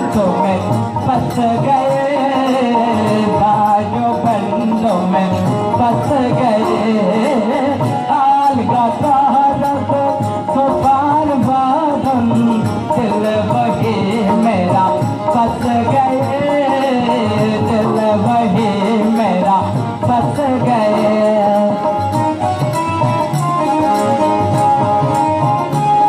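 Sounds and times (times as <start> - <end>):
boy singing into a microphone: 0.0 - 26.0
hand drum: 0.0 - 26.0
keyboard: 0.0 - 26.0.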